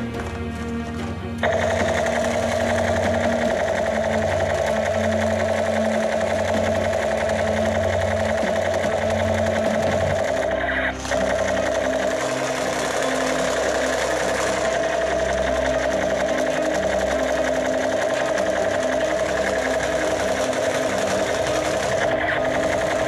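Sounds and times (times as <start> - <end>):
toy gun motor buzzing and rattling: 1.4 - 23.0.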